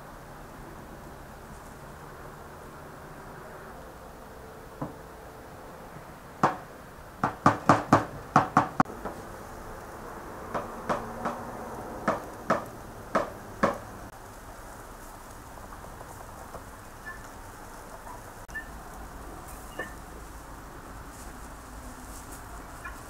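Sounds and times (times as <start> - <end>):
sharp knocks: 6.4 - 6.6, 7.2 - 9.2, 10.5 - 11.4, 12.0 - 13.8.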